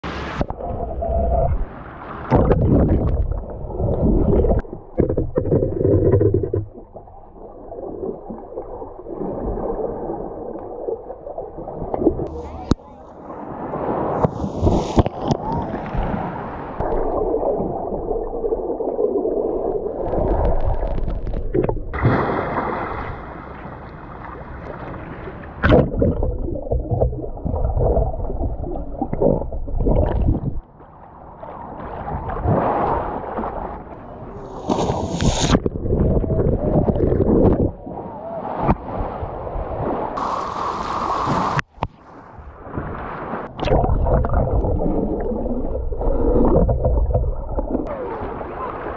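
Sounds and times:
underwater gurgling and bubbling: 0.1s - 12.6s, 14.5s - 22.0s, 25.6s - 30.7s, 31.8s - 38.0s, 43.4s - 48.8s
elephant splashing in water: 22.0s - 23.8s.

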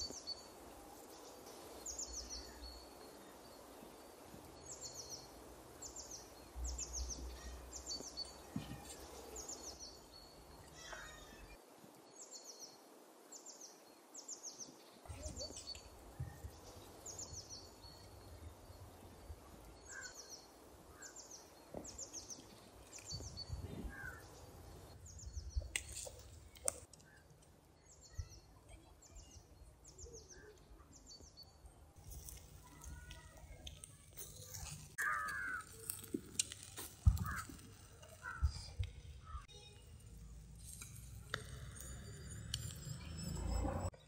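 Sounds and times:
small bird chirping: 1.1s - 11.6s, 14.4s - 44.0s
low outdoor rumble: 32.0s - 44.0s.

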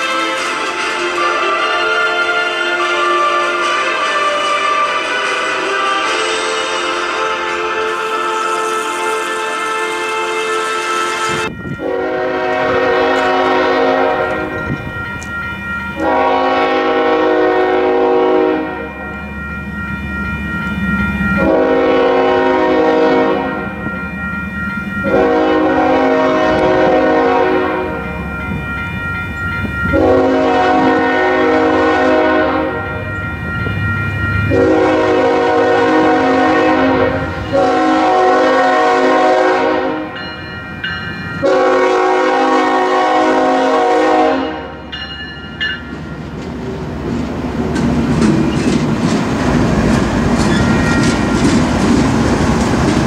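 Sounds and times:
train horn blasts: 0.0s - 15.0s, 16.0s - 19.0s, 21.3s - 23.9s, 25.0s - 28.3s, 29.8s - 33.2s, 34.4s - 40.2s, 41.4s - 44.9s
train rumble: 0.0s - 53.0s
wheels clicking on rail joints: 12.5s - 16.2s, 45.0s - 53.0s.

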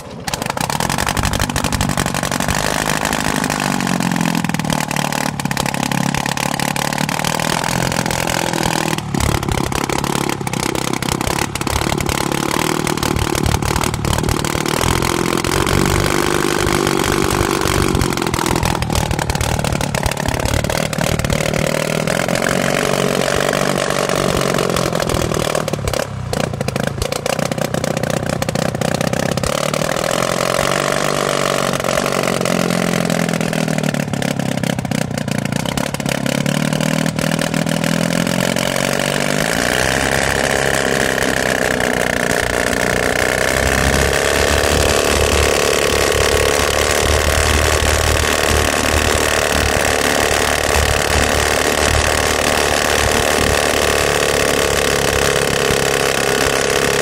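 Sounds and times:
gyrocopter engine and propeller running: 0.0s - 57.0s.

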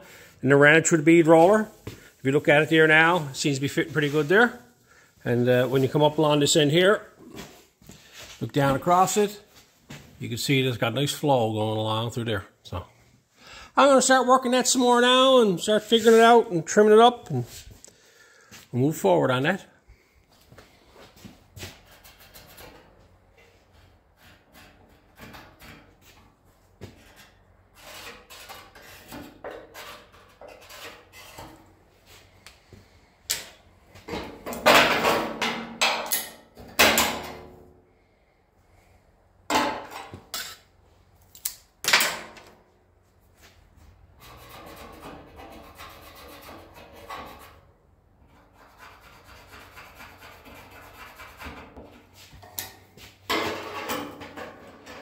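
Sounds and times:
sheet metal scrapes and knocks: 26.9s - 31.7s, 34.1s - 37.5s, 44.2s - 47.7s, 48.3s - 52.7s, 53.3s - 55.0s.

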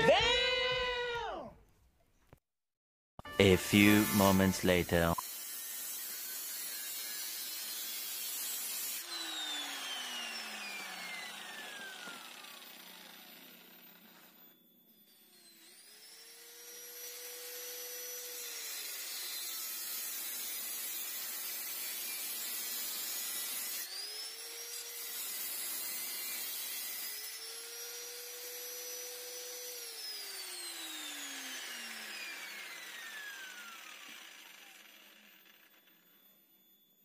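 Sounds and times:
angle grinder motor whine: 6.4s - 19.6s, 27.1s - 37.0s.

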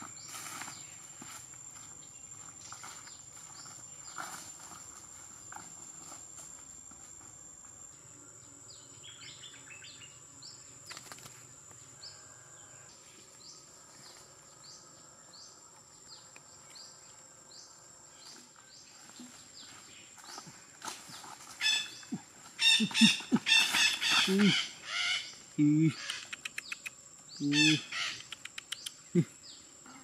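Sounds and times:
high insect whine: 0.0s - 30.0s
wings flapping: 10.9s - 11.4s
bird squawking harshly: 22.6s - 25.3s.

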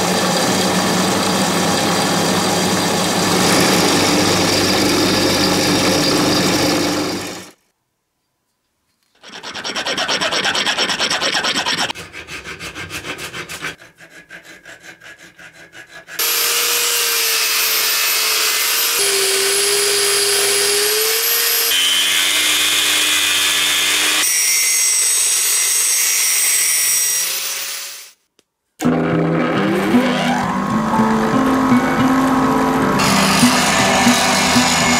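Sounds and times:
angle grinder cutting steel: 0.0s - 7.5s, 9.2s - 12.3s, 16.0s - 28.2s, 28.8s - 34.9s
hand tool scraping steel: 9.0s - 16.6s, 33.0s - 34.9s.

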